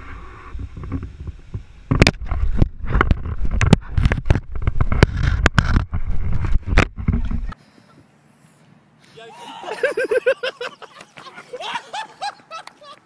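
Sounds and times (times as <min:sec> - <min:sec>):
camera being jostled rumble: 0:00.6 - 0:07.6
teeth knocking and scraping camera: 0:01.9 - 0:07.6.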